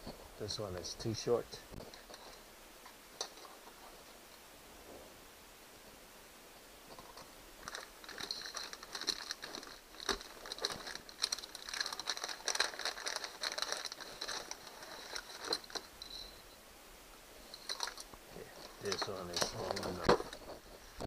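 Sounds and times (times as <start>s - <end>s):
steel cable clicking and sliding: 6.9s - 16.3s, 17.5s - 21.0s
plastic packet crinkling: 7.6s - 15.9s, 18.7s - 20.6s.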